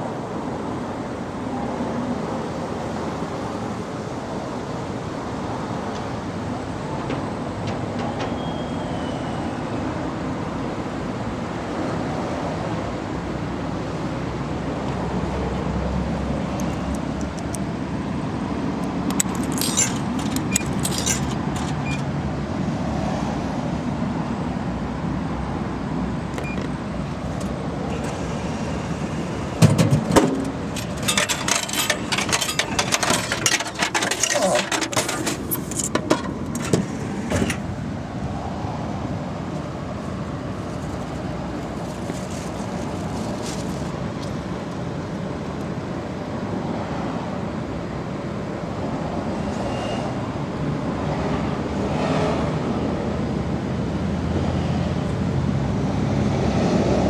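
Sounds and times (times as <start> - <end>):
coins clinking in coin slot: 19.1 - 22.0, 30.3 - 36.7
vending machine dispensing thump: 29.6 - 31.1.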